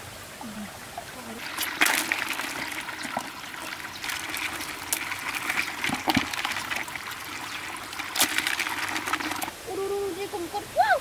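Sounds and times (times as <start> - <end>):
water trickling: 0.0 - 11.0
crabs clicking in plastic bucket: 1.4 - 9.5.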